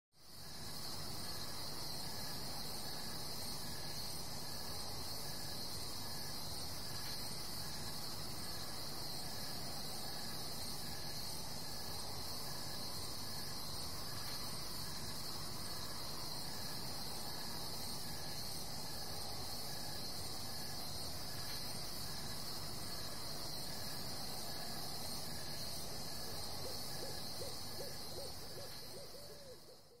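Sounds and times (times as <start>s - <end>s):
insects chirring: 0.2s - 30.0s
high owl-like hoot: 26.6s - 30.0s.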